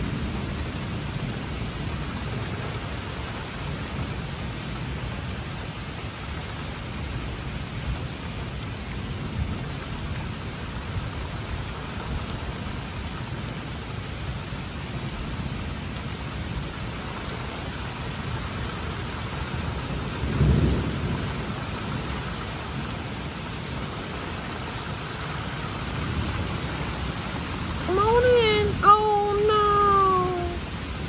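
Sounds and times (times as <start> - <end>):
rain falling on trees: 0.0 - 31.0
thunder rolling: 20.2 - 21.6.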